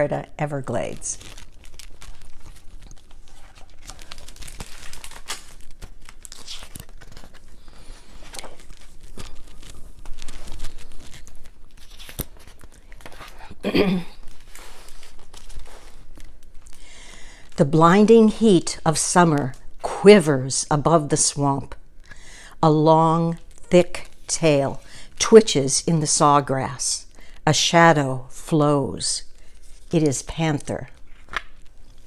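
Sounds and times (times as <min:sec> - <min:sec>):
book pages turning and rustling: 0:00.8 - 0:13.6, 0:14.2 - 0:16.7, 0:29.5 - 0:32.0.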